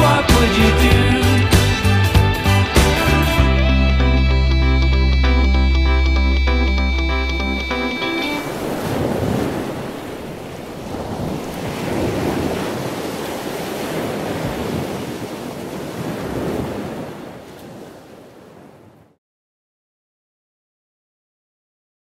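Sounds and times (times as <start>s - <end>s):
ocean surf breaking on beach: 7.8s - 19.2s
wind rumbling on microphone: 8.2s - 19.2s.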